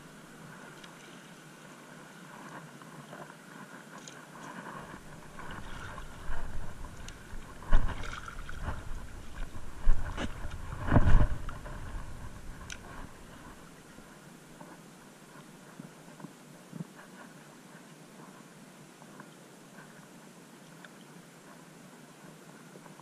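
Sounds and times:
seawater sloshing and splashing: 0.4s - 13.8s.

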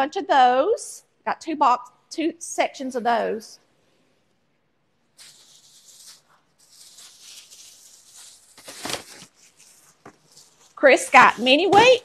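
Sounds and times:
plastic bags rustling: 5.1s - 12.0s.

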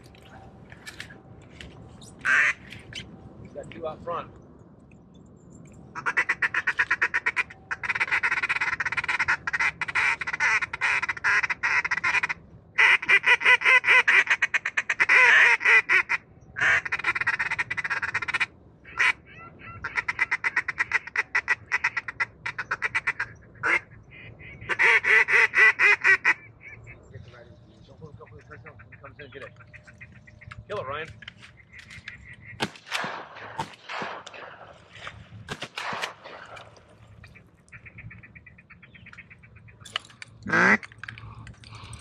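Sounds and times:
duck call quacking: 6.0s - 26.8s, 40.4s - 40.9s.

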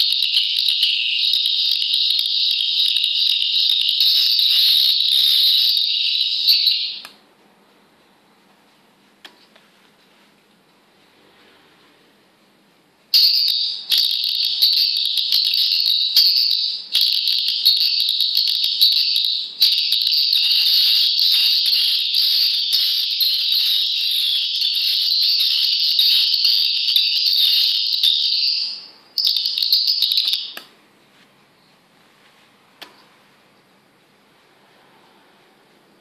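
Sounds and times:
bird twittering over loudspeaker: 0.0s - 7.1s, 13.2s - 30.6s.

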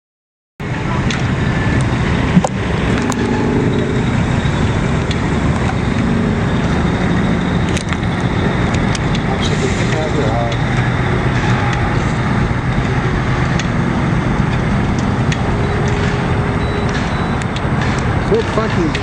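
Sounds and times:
road traffic: 0.6s - 19.0s
truck engine running: 0.6s - 19.0s.

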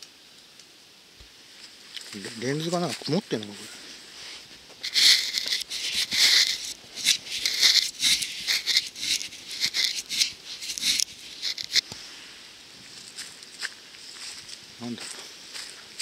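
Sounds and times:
hand rubbing camcorder lens: 4.8s - 11.9s.

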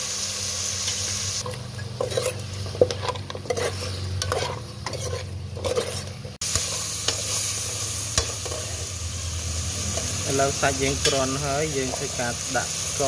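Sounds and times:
bones sizzling in oil: 0.0s - 13.0s
ladle scraping metal pot: 1.4s - 7.4s.

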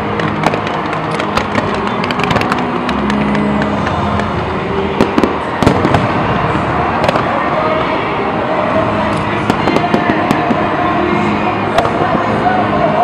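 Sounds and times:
continuous rumble: 0.0s - 13.0s
fireworks cracks and pops: 0.1s - 4.3s, 5.0s - 6.2s, 7.0s - 7.4s
loud firework bang: 5.0s - 7.3s.

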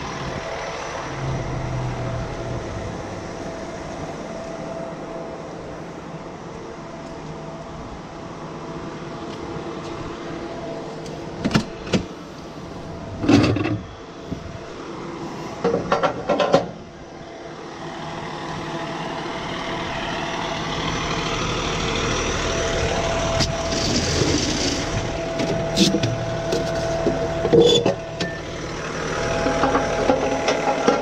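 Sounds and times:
diesel engine idling: 0.0s - 31.0s.

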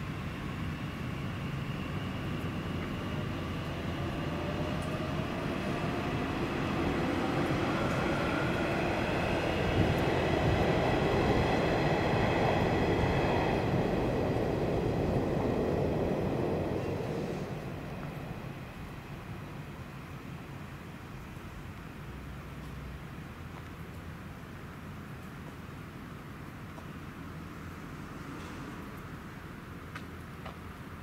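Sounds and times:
train wheels rumbling on track: 0.0s - 19.7s
high whine of train: 0.0s - 22.2s, 25.8s - 31.0s.

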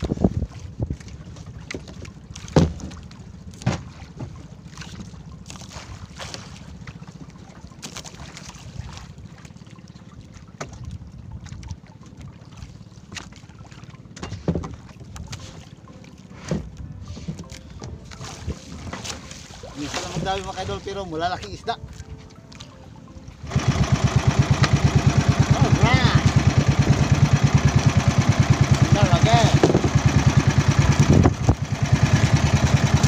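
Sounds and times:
wind buffeting microphone: 0.0s - 1.4s, 29.4s - 32.6s
water sloshing against hull: 0.0s - 33.0s
knocks on boat: 1.6s - 4.4s, 10.6s - 10.8s, 14.2s - 14.8s, 16.5s - 16.7s, 28.6s - 32.4s.

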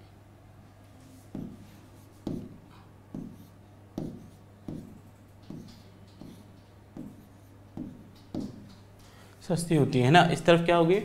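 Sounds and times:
marker writing on a whiteboard: 1.0s - 8.9s.

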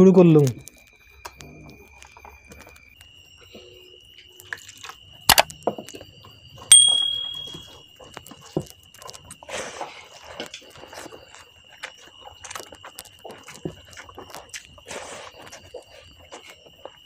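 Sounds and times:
bell-like ding: 6.7s - 7.8s
faint high whine: 6.7s - 7.9s
chewing: 8.0s - 17.0s.

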